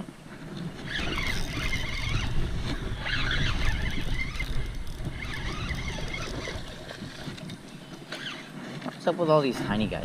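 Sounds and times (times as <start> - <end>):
wind rumble on microphone: 0.0 - 10.0
fishing reel cranking: 0.8 - 8.6.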